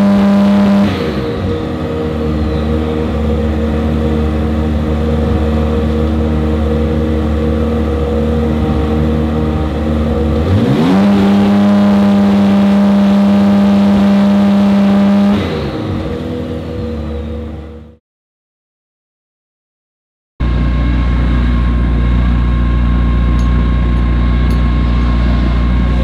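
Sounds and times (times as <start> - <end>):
race car engine revving: 0.0 - 18.0.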